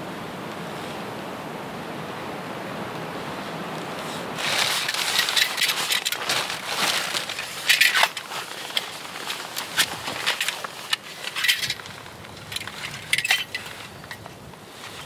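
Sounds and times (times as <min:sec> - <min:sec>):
plastic bag rustling: 0:04.0 - 0:15.0.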